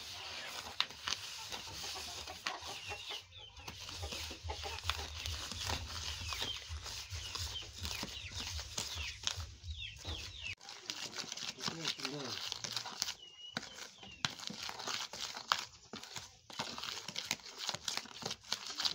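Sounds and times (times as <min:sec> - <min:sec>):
chickens clucking and cheeping: 0:00.0 - 0:10.6, 0:13.1 - 0:14.2.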